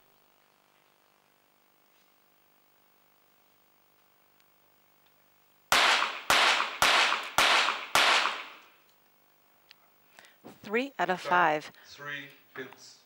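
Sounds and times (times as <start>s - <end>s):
pistol shots with echo: 5.7s - 8.7s.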